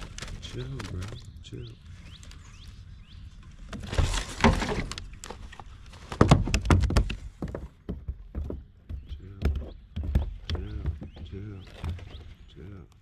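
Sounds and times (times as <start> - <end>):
fish thumping against kayak: 3.7 - 7.6.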